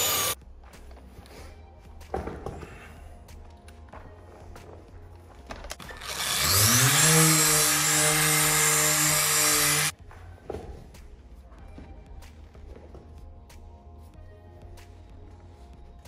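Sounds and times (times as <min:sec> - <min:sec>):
rotary polisher whining: 0:00.0 - 0:00.4, 0:05.8 - 0:09.9.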